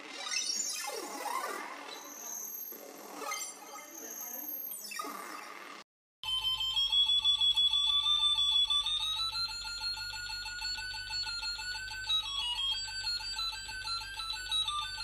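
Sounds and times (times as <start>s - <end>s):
pulsing electronic beep: 0.0s - 15.0s.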